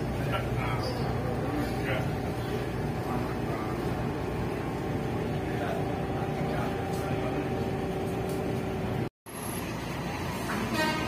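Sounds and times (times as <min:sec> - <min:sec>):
faint passenger chatter: 0:00.0 - 0:09.0
ferry engines droning: 0:00.0 - 0:11.0.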